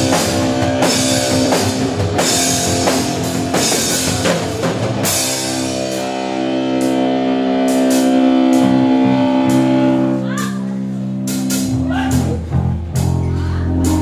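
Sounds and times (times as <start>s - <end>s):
live rock band: 0.0s - 14.0s.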